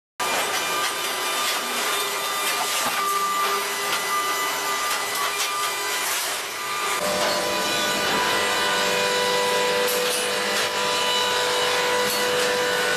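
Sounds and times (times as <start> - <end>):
hydraulic baler hissing whine: 5.9 - 12.9.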